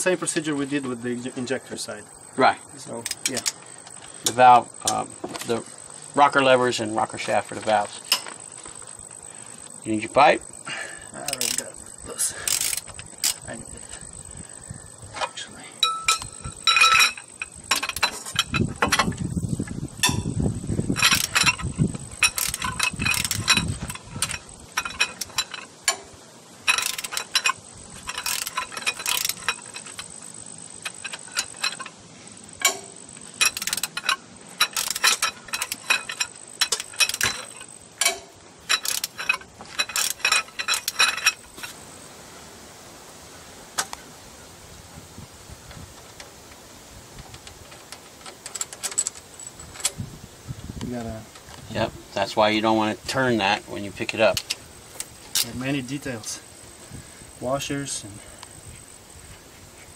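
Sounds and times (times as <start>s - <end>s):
ratchet wrench clicking: 3.0s - 3.6s, 11.2s - 14.4s, 15.8s - 41.8s.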